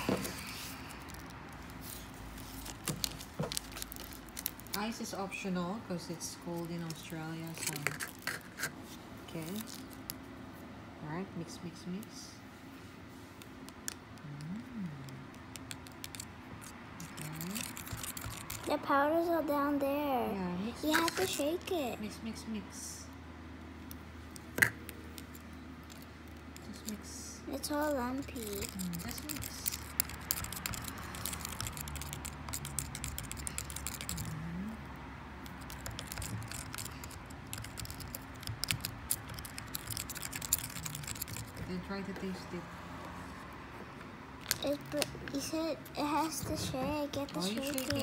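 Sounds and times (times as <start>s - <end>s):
straw clicking and scraping in cup: 0.0s - 5.1s, 6.4s - 10.2s, 13.4s - 18.9s, 20.8s - 21.7s, 23.9s - 34.4s, 35.4s - 41.8s, 44.4s - 48.0s
straw clicking against plastic cup: 24.3s - 25.3s.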